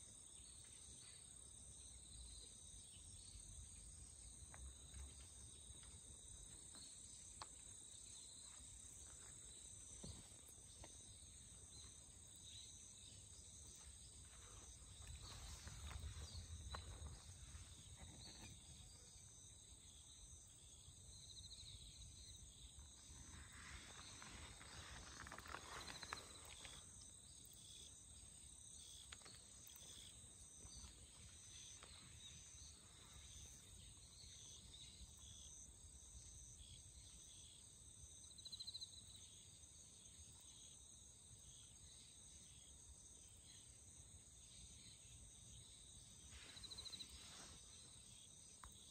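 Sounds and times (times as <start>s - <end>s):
faint insect chirring: 0.0s - 48.9s
soft rustle: 23.0s - 27.0s, 46.2s - 48.3s.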